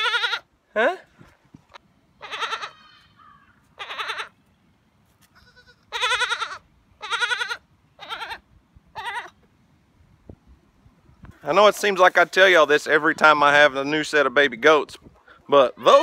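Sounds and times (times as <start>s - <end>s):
goat kid bleating: 0.0s - 0.5s, 2.2s - 4.4s, 5.2s - 9.4s.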